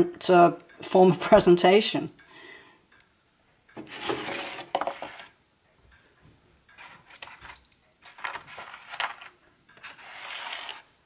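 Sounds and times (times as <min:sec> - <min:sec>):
egg carton scraping on stone: 0:03.8 - 0:05.3, 0:08.0 - 0:11.0
egg carton rustling: 0:03.8 - 0:05.4, 0:06.8 - 0:11.0.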